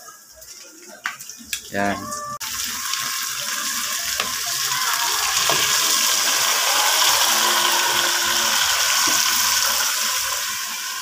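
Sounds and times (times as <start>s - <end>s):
meat sizzling in hot oil: 2.4s - 11.0s.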